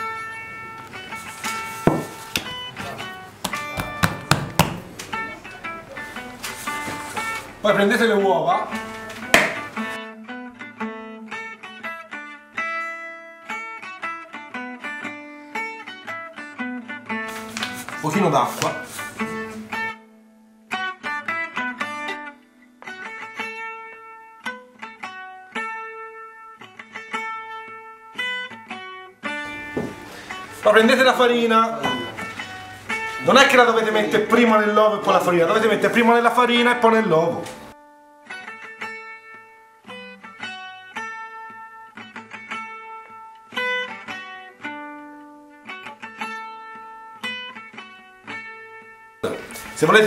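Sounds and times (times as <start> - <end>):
plucked guitar melody: 0.0 - 50.0
guitar plucking quick notes: 31.2 - 34.2.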